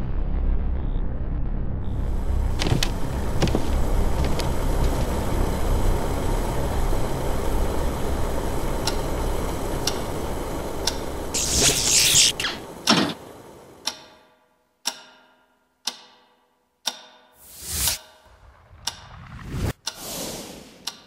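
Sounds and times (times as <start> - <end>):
steady low rumble: 0.0 - 11.4, 17.6 - 20.9
loud hiss: 11.3 - 13.6
wall clock ticking: 13.8 - 17.4, 19.7 - 20.1, 20.7 - 21.0.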